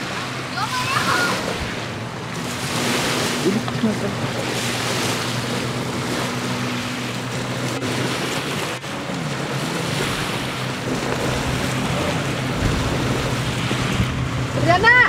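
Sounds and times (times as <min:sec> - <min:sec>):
jet ski engine humming: 0:00.0 - 0:15.0
water sounds: 0:00.0 - 0:15.0
wind noise on microphone: 0:10.9 - 0:15.0.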